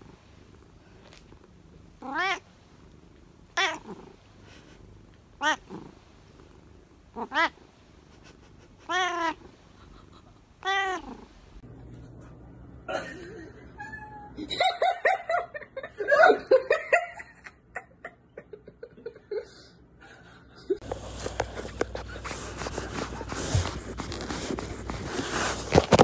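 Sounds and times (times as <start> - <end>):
cat meowing: 2.0 - 2.4, 3.6 - 4.0, 7.2 - 7.6, 8.8 - 9.4, 10.6 - 11.2
rustles and clicks: 20.8 - 26.0.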